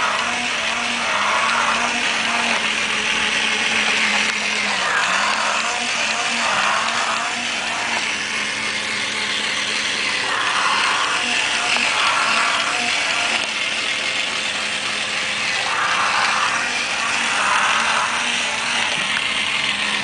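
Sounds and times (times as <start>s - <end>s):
toy motor grinding and ratcheting: 0.0s - 20.0s.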